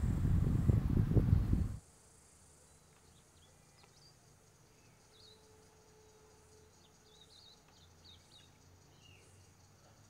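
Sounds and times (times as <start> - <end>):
low background noise: 0.0 - 10.0
bird chirps and warbles: 2.6 - 10.0.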